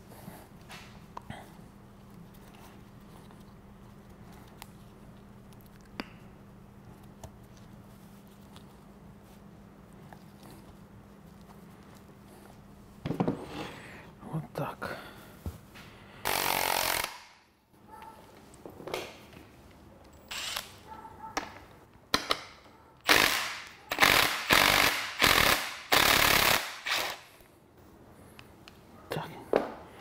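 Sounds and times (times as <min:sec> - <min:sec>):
impact wrench hammering: 0:23.1 - 0:27.2.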